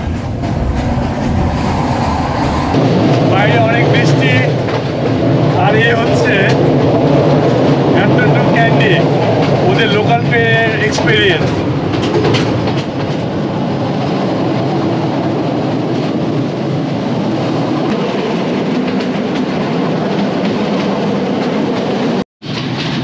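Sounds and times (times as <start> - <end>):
train rumbling and rattling on rails: 0.0 - 23.0.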